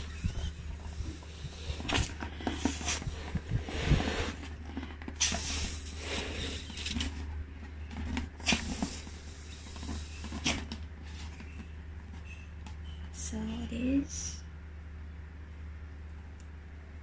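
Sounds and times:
breath puffs into balloon: 0:00.0 - 0:07.0
rubber balloon squeaking: 0:00.0 - 0:07.2
steady low hum: 0:00.0 - 0:17.0.

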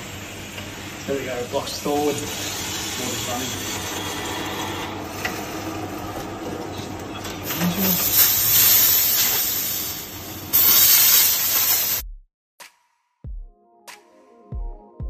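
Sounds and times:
hose spraying water on concrete: 0:07.6 - 0:12.0.

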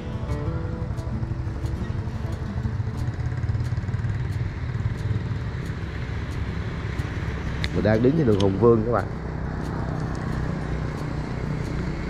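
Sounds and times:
vehicle engine rumbling: 0:00.0 - 0:12.0
faint regular ticks: 0:01.7 - 0:12.0.

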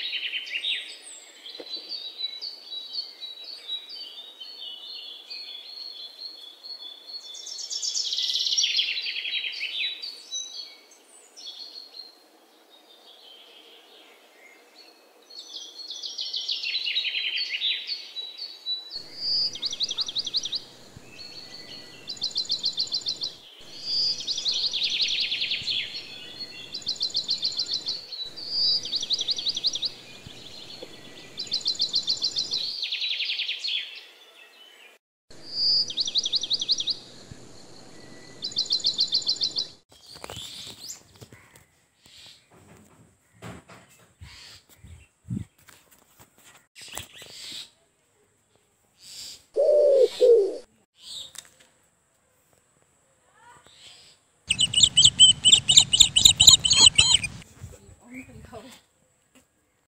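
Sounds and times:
bird chirping: 0:18.8 - 0:39.8, 0:54.5 - 0:57.4
bird trilling: 0:19.0 - 0:32.6, 0:49.6 - 0:50.6, 0:54.5 - 0:57.4.

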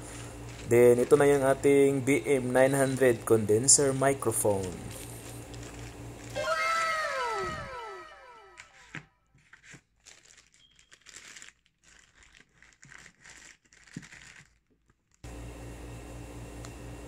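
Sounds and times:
steady low hum: 0:00.0 - 0:06.4
plastic packaging crinkling: 0:00.0 - 0:07.6, 0:08.4 - 0:15.3.

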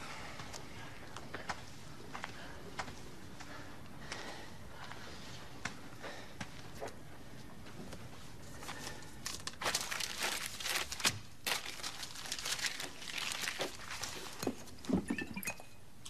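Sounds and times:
paper rustling and crinkling: 0:08.5 - 0:14.8.

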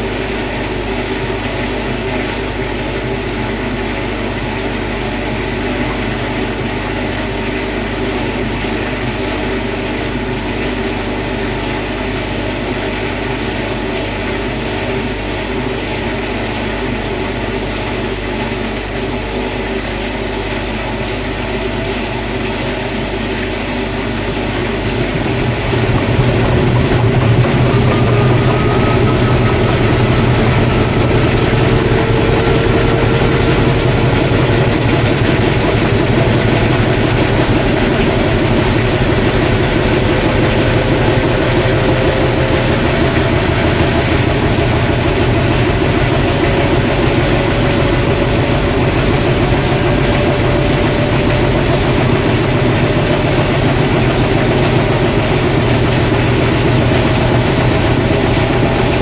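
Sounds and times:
washer drum spinning: 0:00.0 - 0:59.0
faint motor whine: 0:24.0 - 0:59.0.

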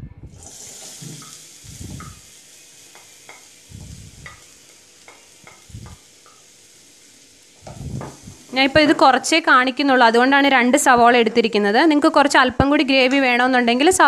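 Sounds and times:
onions sizzling in hot oil: 0:00.3 - 0:09.8
spatula scraping and knocking pan: 0:00.8 - 0:02.3.

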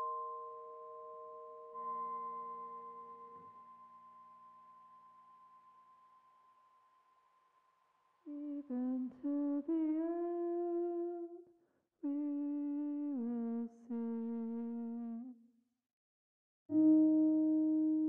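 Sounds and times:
sustained ambient tone: 0:00.0 - 0:06.4
wordless voice-like melody: 0:08.3 - 0:11.4, 0:12.0 - 0:15.4, 0:16.7 - 0:18.0.

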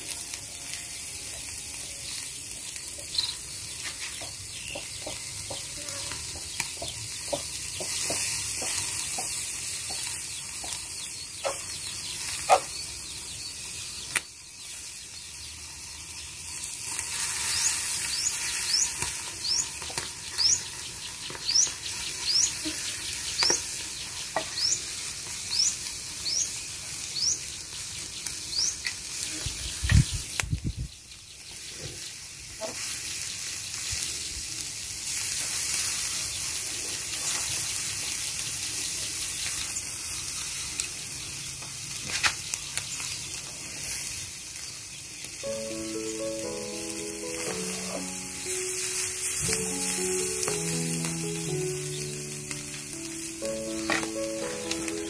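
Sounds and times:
fish sizzling on a grill: 0:00.0 - 0:55.0
bird chirping: 0:01.8 - 0:32.0, 0:44.6 - 0:55.0.

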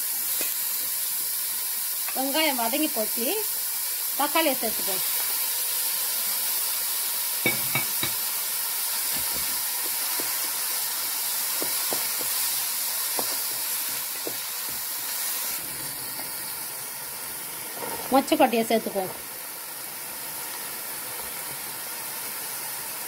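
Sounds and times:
vegetables sizzling in hot oil: 0:00.0 - 0:23.0.

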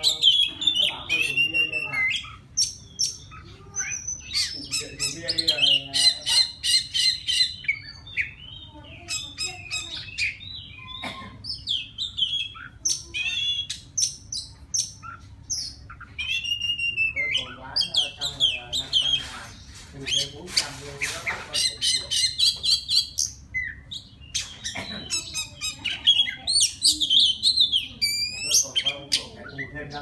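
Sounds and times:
bird singing whistled notes: 0:15.6 - 0:19.0.

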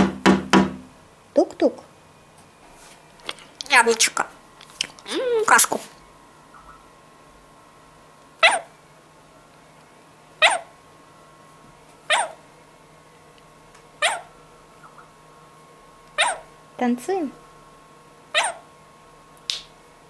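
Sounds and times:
parrot squawking: 0:08.4 - 0:08.7, 0:10.4 - 0:10.7, 0:12.1 - 0:12.4, 0:14.0 - 0:15.0, 0:16.2 - 0:16.5, 0:18.3 - 0:18.7.

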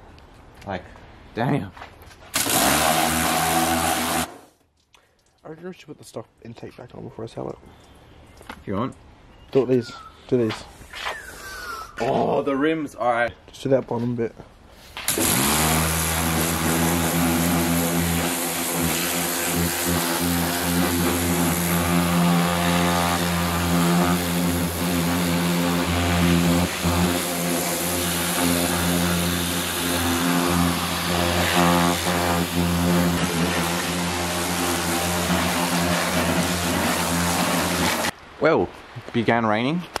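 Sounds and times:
pressure washer pump humming: 0:02.4 - 0:04.5, 0:15.1 - 0:38.1
water jet hissing: 0:15.1 - 0:38.2.

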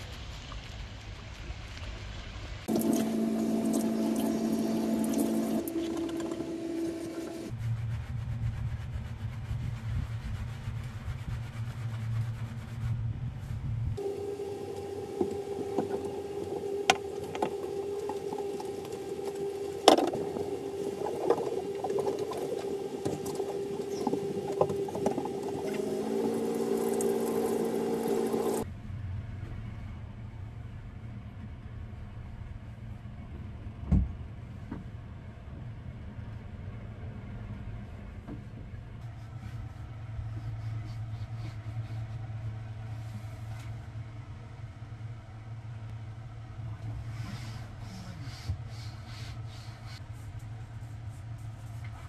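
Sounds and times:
steady hum: 0:02.6 - 0:33.4
shower water running into basin: 0:02.7 - 0:07.5, 0:14.7 - 0:28.6
water splashes: 0:17.1 - 0:28.6.

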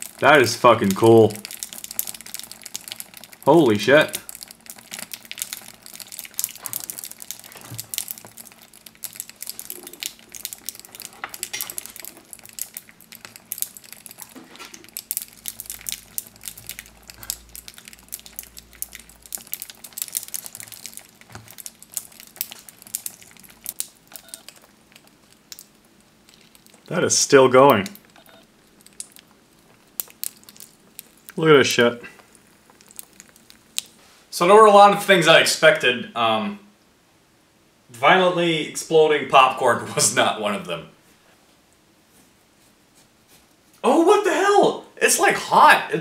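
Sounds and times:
gel beads crackling and popping: 0:00.0 - 0:34.0.

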